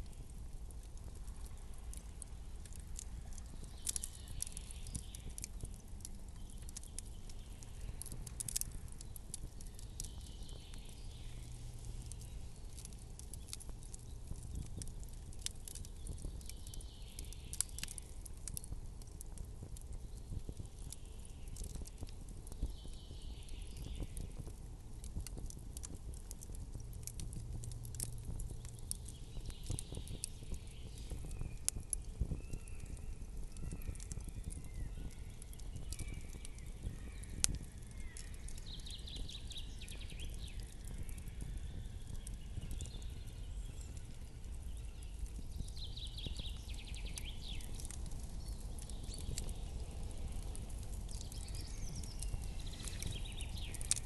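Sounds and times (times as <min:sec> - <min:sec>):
campfire crackling: 0:00.0 - 0:54.0
low steady rumble: 0:24.0 - 0:38.8.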